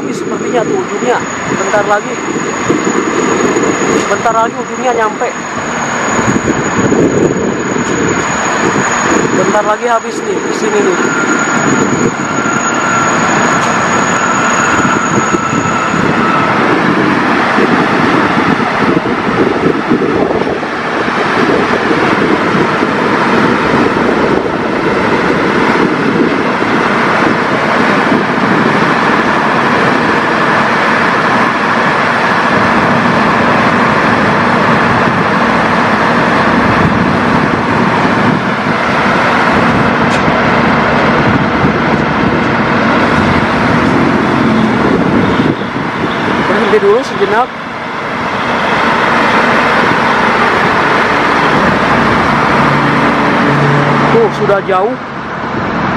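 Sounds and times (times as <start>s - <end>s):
thin high whine: 0.0s - 16.7s, 49.7s - 55.9s
road traffic: 0.0s - 55.9s.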